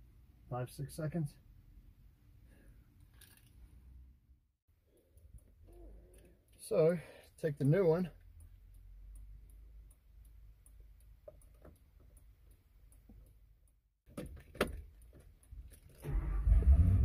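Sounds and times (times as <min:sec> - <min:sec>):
truck engine starting and running: 0:15.9 - 0:17.0.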